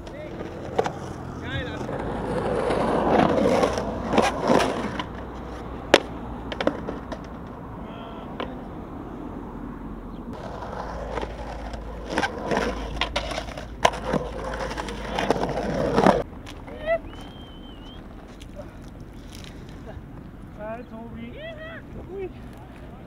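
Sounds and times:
skateboard clacking on concrete: 0.0s - 7.6s, 8.4s - 8.6s, 10.3s - 20.3s
skateboard wheels rolling on concrete: 0.0s - 23.0s.

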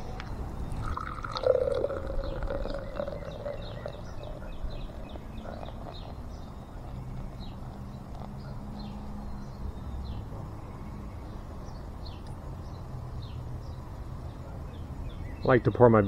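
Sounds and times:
birds chirping: 0.0s - 16.0s
beer pouring into glass: 0.7s - 5.2s.

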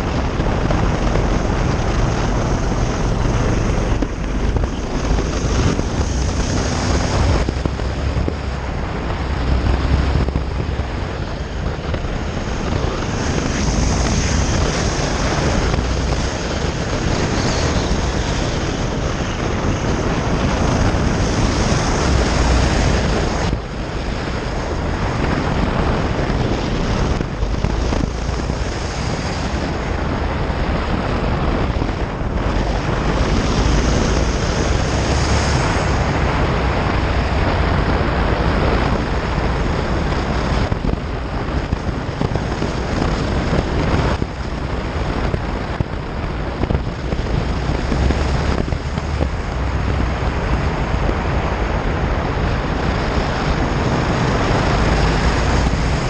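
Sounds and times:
motorcycle engine: 0.0s - 56.0s
wind rushing over microphone: 0.0s - 56.0s.

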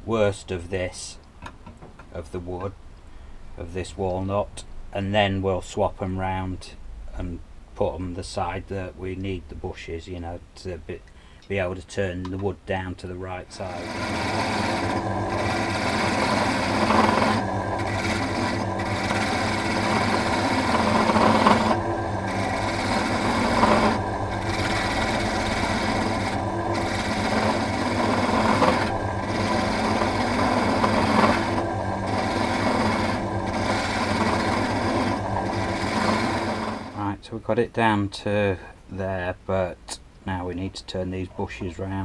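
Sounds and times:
electric motor hum: 13.4s - 37.0s
turning tool scraping wood: 13.5s - 37.1s.

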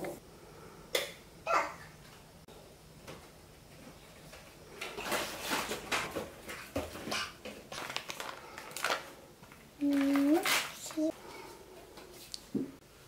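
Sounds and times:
plastic wipes pack crinkling: 4.8s - 11.1s.

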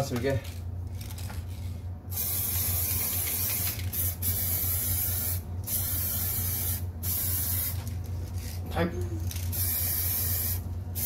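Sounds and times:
aerosol spray can hissing: 2.2s - 7.8s, 9.5s - 11.0s.

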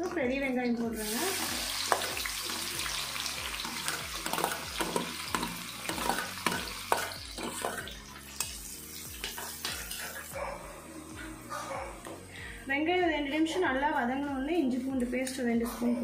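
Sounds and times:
onions sizzling in oil: 0.9s - 10.4s
metal spatula scraping pan: 9.2s - 10.3s.

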